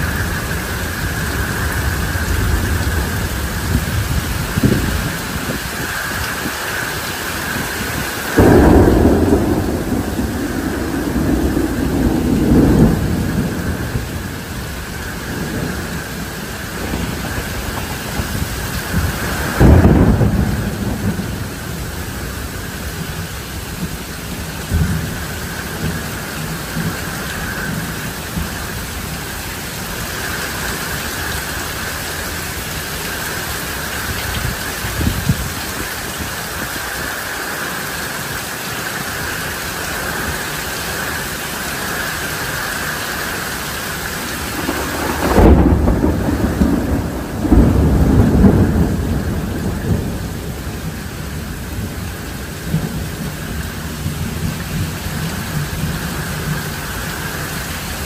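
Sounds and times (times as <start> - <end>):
rolling thunderclap: 0.0 - 29.2, 43.9 - 56.9
steady rain: 0.0 - 58.0.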